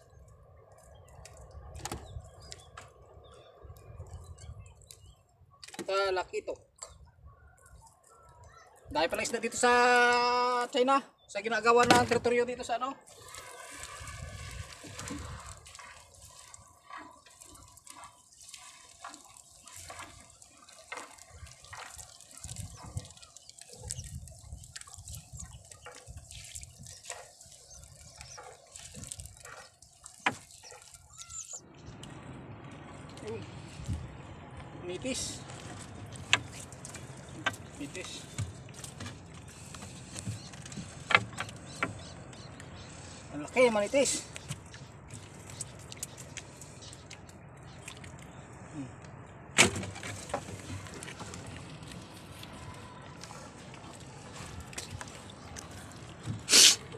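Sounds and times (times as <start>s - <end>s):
water dripping and splashing: 0.0s - 7.0s, 11.7s - 56.9s.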